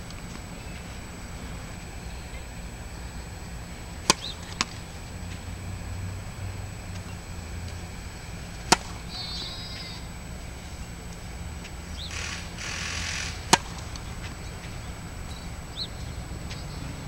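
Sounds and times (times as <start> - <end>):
tennis racket striking ball: 4.0 - 4.8, 8.6 - 9.1, 13.4 - 14.4.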